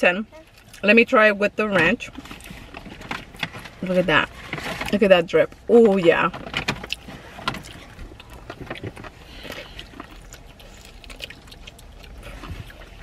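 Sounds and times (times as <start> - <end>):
wet chewing: 6.7 - 13.0.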